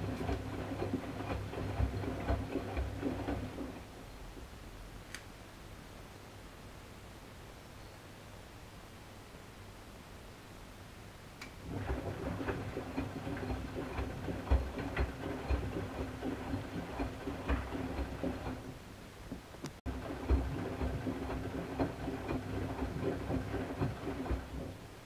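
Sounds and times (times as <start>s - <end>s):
water sloshing: 0.0s - 3.9s, 11.6s - 25.0s
washing machine motor hum: 0.0s - 4.0s, 11.5s - 25.0s.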